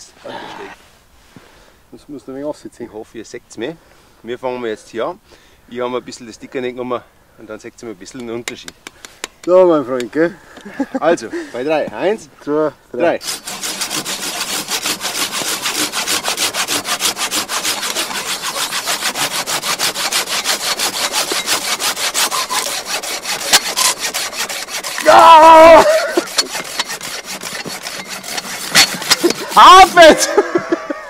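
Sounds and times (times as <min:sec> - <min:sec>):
hand saws rasping through wood: 0:13.2 - 0:30.7
man calling out: 0:25.0 - 0:26.2, 0:29.4 - 0:30.4.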